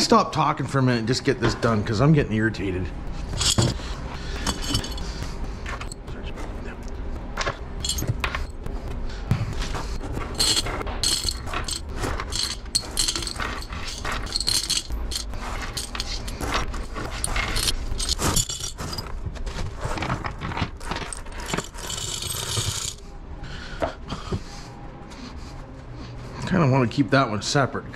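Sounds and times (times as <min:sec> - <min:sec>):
metal washers clinking: 0:03.3 - 0:06.0, 0:07.4 - 0:08.6, 0:10.2 - 0:19.2, 0:20.0 - 0:23.0.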